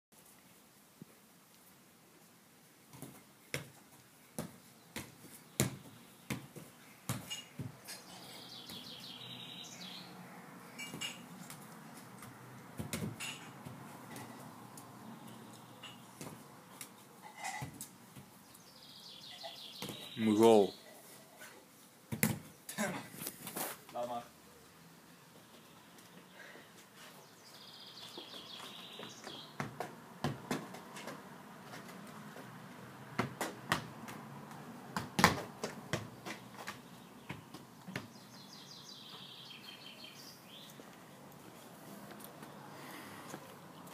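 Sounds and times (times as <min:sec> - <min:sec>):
football thumps: 0:04.4 - 0:07.8, 0:12.8 - 0:13.8, 0:22.1 - 0:22.5, 0:29.6 - 0:31.2, 0:33.2 - 0:34.2, 0:34.9 - 0:38.1
birds chirping: 0:04.7 - 0:11.3, 0:14.1 - 0:17.0, 0:18.3 - 0:22.7, 0:25.4 - 0:29.8, 0:36.4 - 0:43.9.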